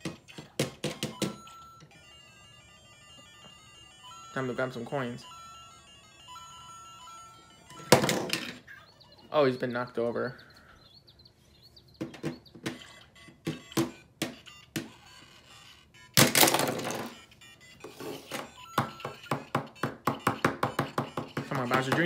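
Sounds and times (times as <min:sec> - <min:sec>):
toy figure knocking on plastic tiles: 0:18.7 - 0:22.0.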